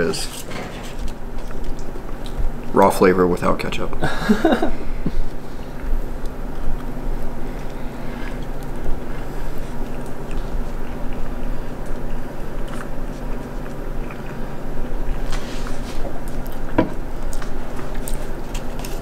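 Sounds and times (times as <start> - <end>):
low hum: 3.9 - 19.0
person chewing food: 5.0 - 19.0.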